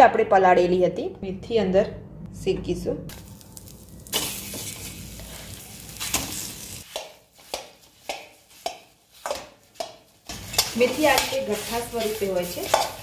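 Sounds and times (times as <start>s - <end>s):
metal spoon scraping pan: 9.3s - 13.0s.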